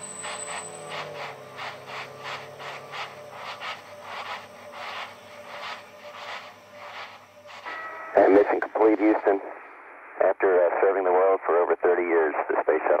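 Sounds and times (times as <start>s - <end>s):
rhythmic scraping pulse: 0.0s - 9.5s
high whine: 0.0s - 13.0s.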